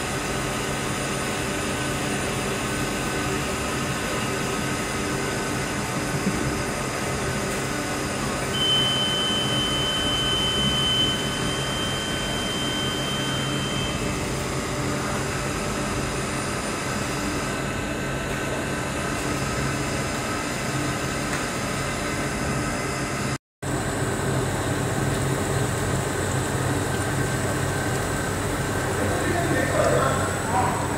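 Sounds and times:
thin high whine: 0:00.0 - 0:18.6
machine hum: 0:00.0 - 0:30.9.

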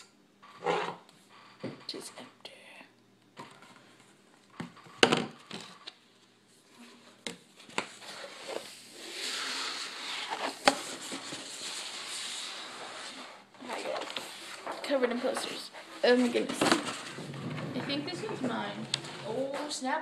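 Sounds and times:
paper posters rustling: 0:06.8 - 0:20.0.

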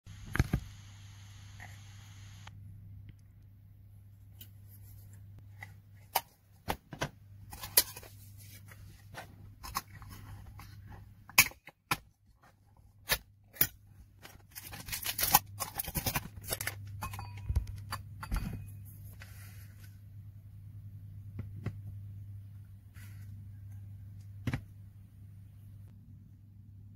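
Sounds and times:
metal seal crinkling: 0:13.0 - 0:17.0
steady low hum: 0:16.5 - 0:26.9.

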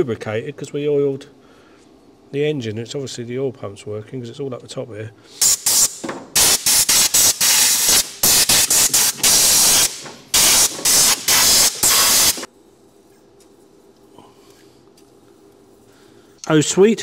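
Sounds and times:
air blow gun hissing blasts: 0:05.3 - 0:12.5.

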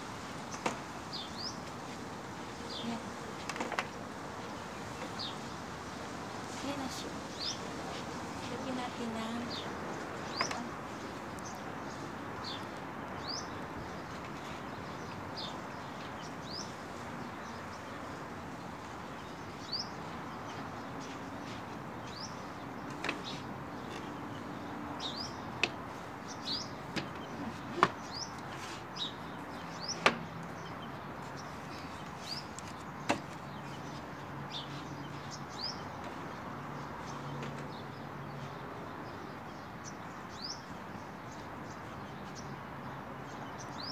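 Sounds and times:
birds chirping: 0:00.3 - 0:43.9.

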